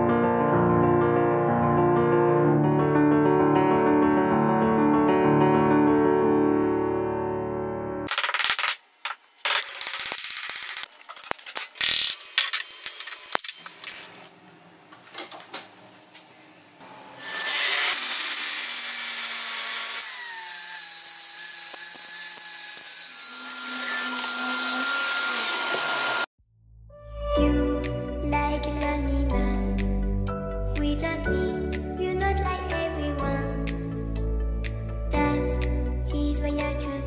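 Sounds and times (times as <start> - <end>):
circular saw cutting: 16.8 - 26.3.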